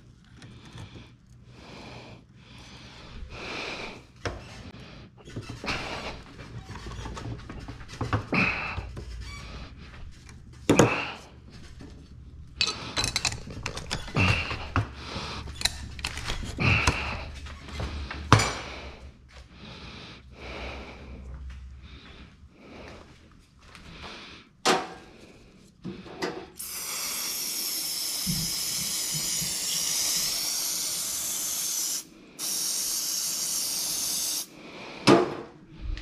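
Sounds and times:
tools knocking and clinking: 0:12.6 - 0:14.8
short hissing bursts: 0:26.6 - 0:34.5.

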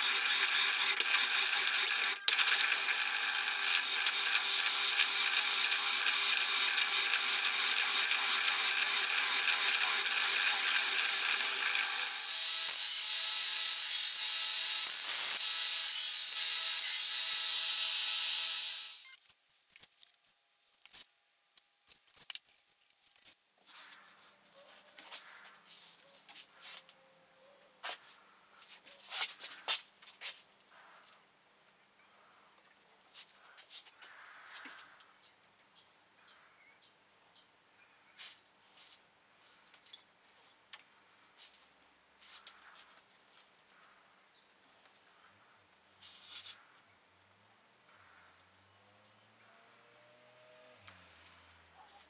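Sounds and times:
drill press drilling through steel: 0:00.0 - 0:19.1
power tool running: 0:00.0 - 0:19.2.

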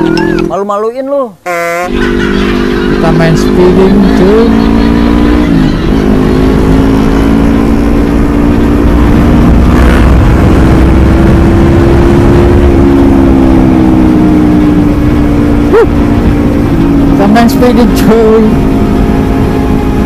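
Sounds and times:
motorcycle engine at high revs: 0:01.6 - 0:20.0
wind rumble on microphone: 0:08.1 - 0:20.0.

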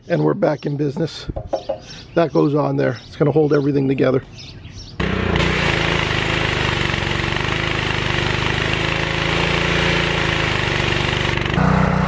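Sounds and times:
pressure washer engine running: 0:05.0 - 0:12.0
high-pressure spray hiss: 0:05.4 - 0:11.4.

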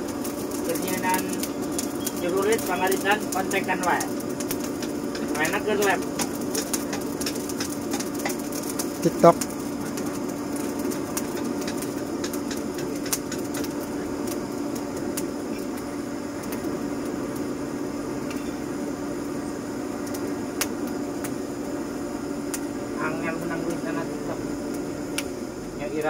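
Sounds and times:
sharp clicks and crackles: 0:00.0 - 0:17.5, 0:24.7 - 0:25.3
forge blower humming: 0:00.0 - 0:26.0.

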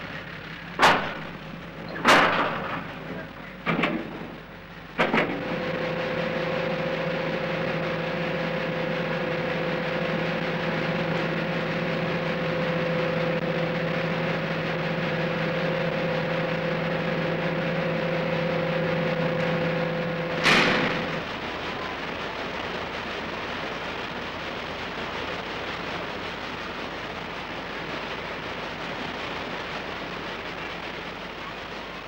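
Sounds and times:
engine drone: 0:00.0 - 0:32.0
heavy clunk: 0:00.8 - 0:05.6, 0:20.3 - 0:21.3.

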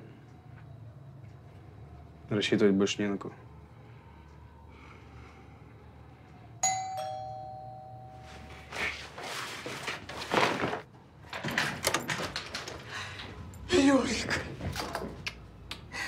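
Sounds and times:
two-tone doorbell chime: 0:06.6 - 0:08.7.

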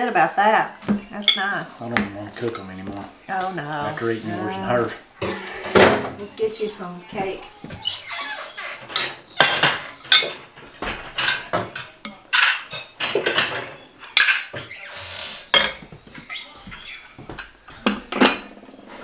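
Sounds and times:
cutlery clinking on ceramic plates: 0:07.7 - 0:14.7, 0:15.4 - 0:18.6.

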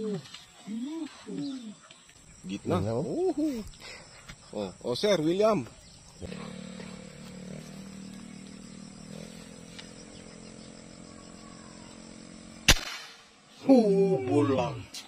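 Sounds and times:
sharp crack: 0:12.6 - 0:13.4.

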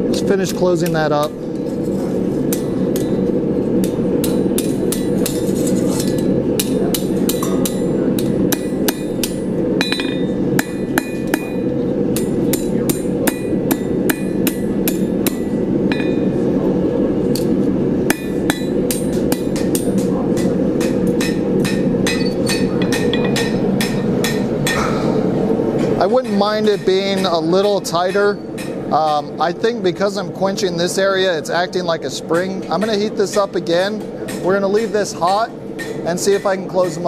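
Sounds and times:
hammer striking steel on anvil: 0:02.4 - 0:16.4, 0:17.3 - 0:25.0, 0:26.0 - 0:29.3, 0:32.4 - 0:37.0.

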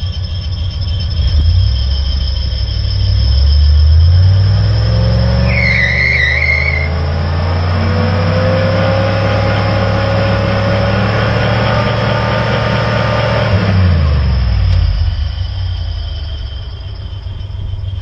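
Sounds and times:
tyre squeal: 0:00.0 - 0:18.0
engine revving hard: 0:03.2 - 0:15.4.

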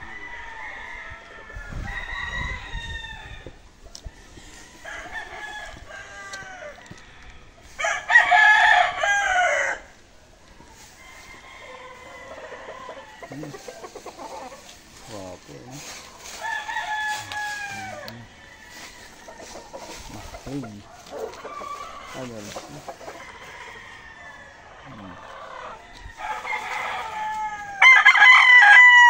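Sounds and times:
roosters crowing: 0:00.0 - 0:29.0.

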